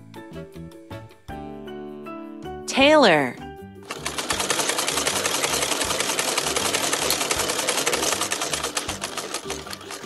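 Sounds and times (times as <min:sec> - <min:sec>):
sewing machine stitching: 0:03.9 - 0:10.0.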